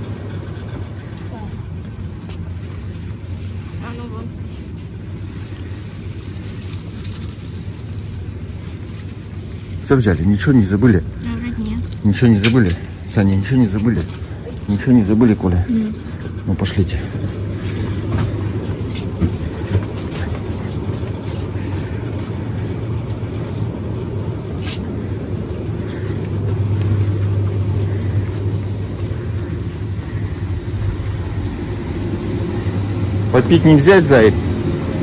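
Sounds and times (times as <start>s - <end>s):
low electrical hum: 0.0s - 35.0s
footsteps of people walking: 16.0s - 33.3s.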